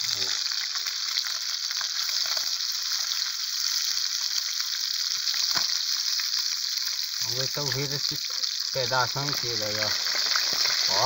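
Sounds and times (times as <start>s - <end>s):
fish frying in hot oil: 0.0s - 11.0s.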